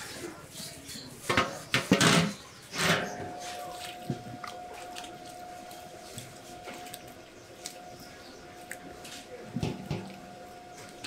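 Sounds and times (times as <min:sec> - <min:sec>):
faint steady tone: 0:02.8 - 0:11.0
hand squelching sticky dough: 0:03.1 - 0:11.0.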